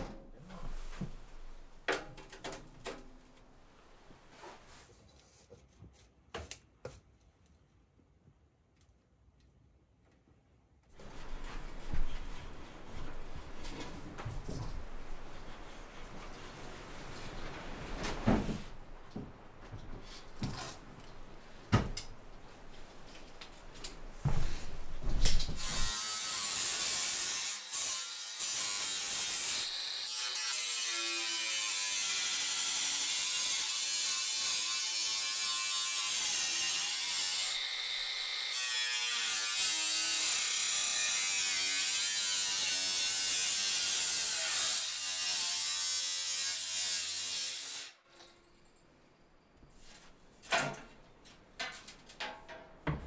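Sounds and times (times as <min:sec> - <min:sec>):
angle grinder cutting steel: 0:25.6 - 0:48.0.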